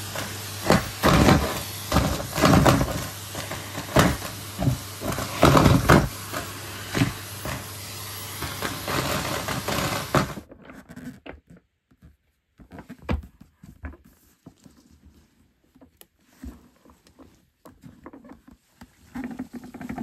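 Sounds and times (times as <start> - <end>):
vacuum cleaner running: 0.0 - 10.4.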